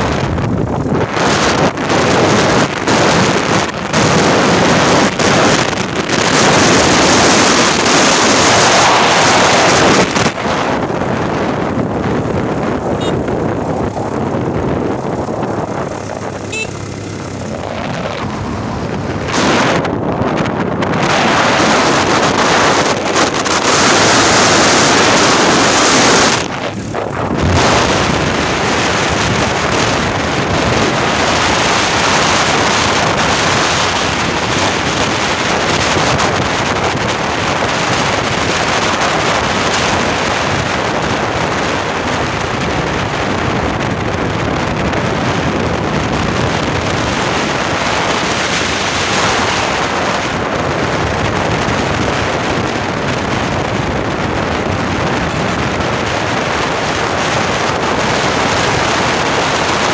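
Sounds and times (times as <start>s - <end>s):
loud steady rushing noise: 0.0s - 59.9s
wind buffeting microphone: 0.0s - 59.9s.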